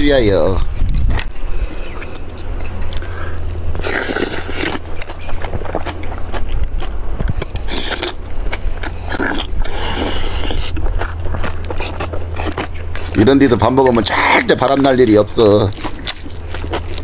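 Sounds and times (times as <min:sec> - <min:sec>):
low wind rumble on microphone: 0:00.0 - 0:13.1
slurping and chewing: 0:01.2 - 0:17.0.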